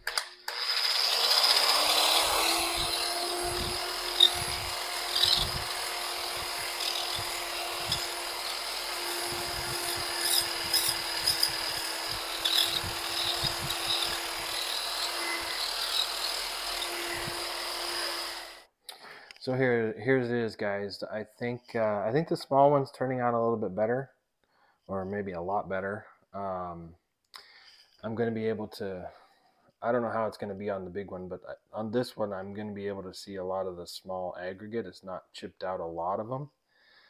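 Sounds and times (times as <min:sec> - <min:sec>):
electric polisher motor whine: 0:00.5 - 0:18.6.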